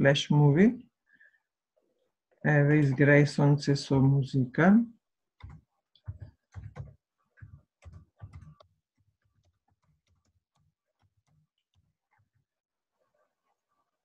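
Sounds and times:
computer keyboard typing: 5.4 - 11.9.

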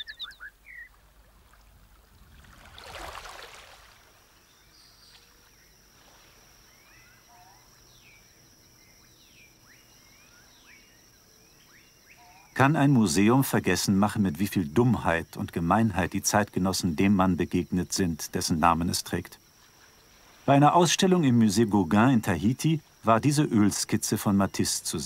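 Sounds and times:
birds chirping: 0.0 - 1.0.

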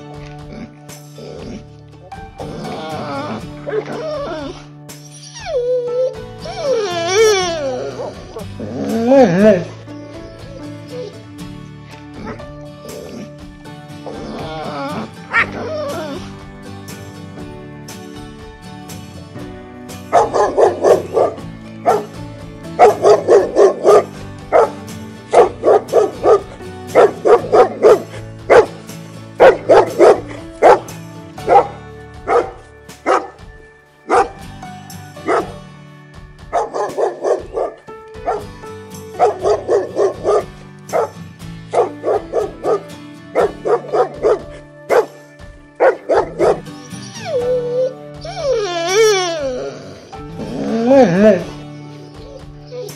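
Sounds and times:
background music: 0.0 - 52.9
dog barking: 20.1 - 22.2, 22.8 - 28.8, 29.4 - 33.4, 34.1 - 34.4, 35.2 - 35.6, 36.5 - 38.5, 39.2 - 45.2, 45.8 - 46.7.

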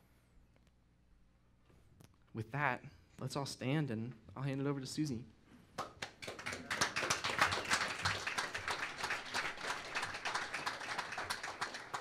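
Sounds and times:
crowd applauding: 5.8 - 12.0.

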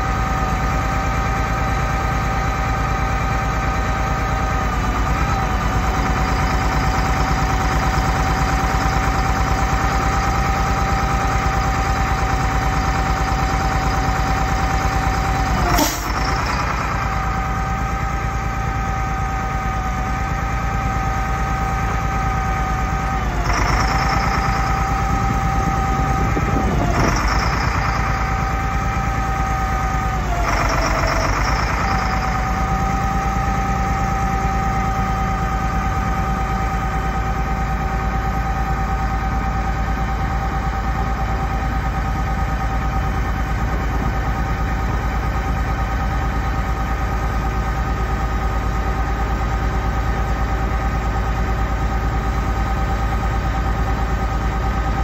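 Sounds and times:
diesel truck engine running: 0.0 - 55.0
hydraulic system whine: 13.0 - 37.8.

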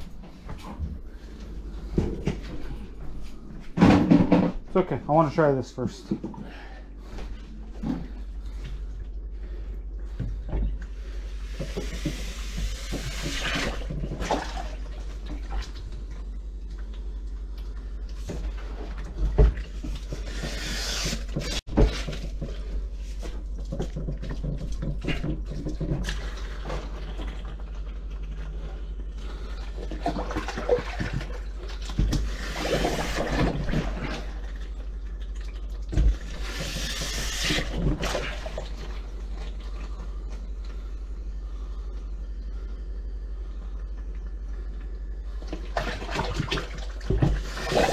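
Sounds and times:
plunger pumping in water: 11.1 - 15.9, 18.2 - 22.7, 29.3 - 39.2, 45.4 - 47.9.

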